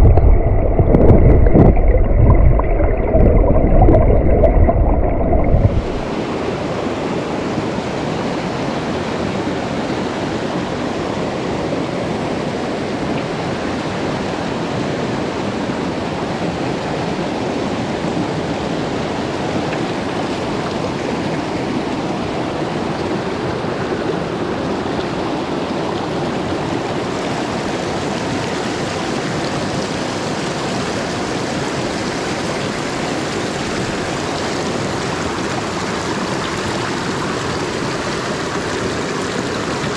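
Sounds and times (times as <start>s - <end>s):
muffled underwater rush: 0.0s - 6.3s
stream rushing over rocks: 0.0s - 39.9s.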